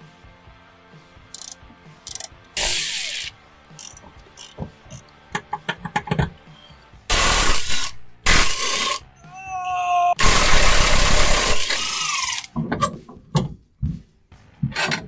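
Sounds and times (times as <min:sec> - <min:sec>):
ratchet wrench clicking: 0:01.3 - 0:05.2, 0:11.4 - 0:12.5
loud noisy bursts: 0:10.2 - 0:11.9.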